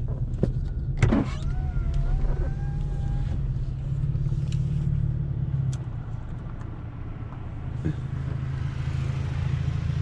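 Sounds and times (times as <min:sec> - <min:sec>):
car engine running: 0:00.0 - 0:10.0
power window motor whining: 0:01.0 - 0:03.6.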